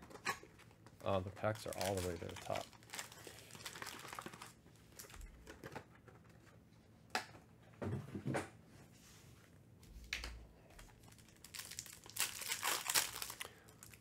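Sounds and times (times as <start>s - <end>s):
foil card packs handled: 0.0s - 6.6s, 10.8s - 14.0s.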